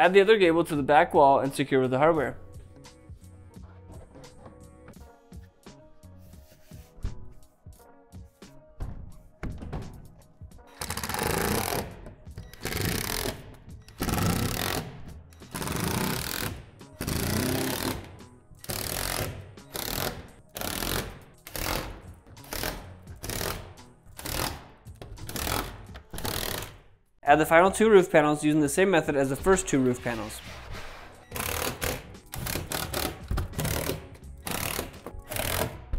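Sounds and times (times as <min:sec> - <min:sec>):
impact driver driving screws: 0:10.7 - 0:23.6, 0:25.2 - 0:26.8, 0:31.3 - 0:35.9.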